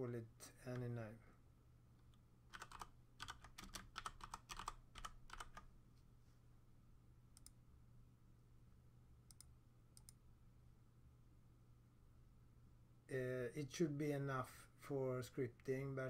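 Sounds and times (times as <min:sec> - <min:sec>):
keyboard typing: 0:02.0 - 0:05.7
mouse clicks: 0:07.4 - 0:07.6, 0:09.3 - 0:10.2.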